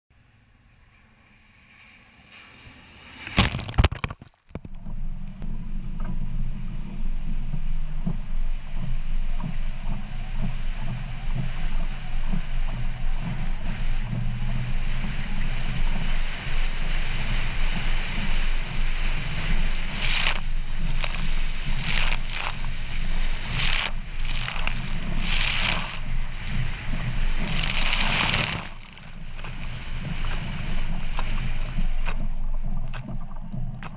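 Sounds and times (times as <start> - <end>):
muddy water splashing hood: 18.6 - 33.9.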